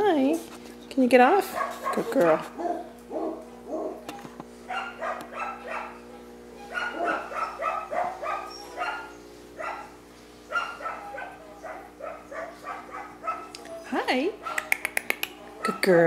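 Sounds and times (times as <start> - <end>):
steady low hum: 0.0 - 16.0
dog barking: 1.5 - 4.0, 4.7 - 6.1, 6.7 - 13.5, 14.4 - 14.7.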